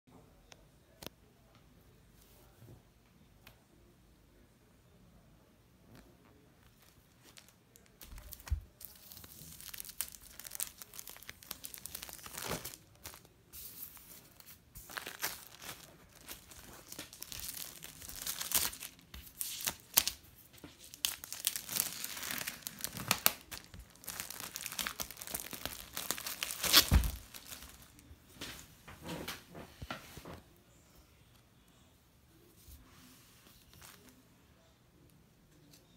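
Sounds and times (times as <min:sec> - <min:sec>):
plastic wrap tearing and crinkling: 0:07.2 - 0:28.0.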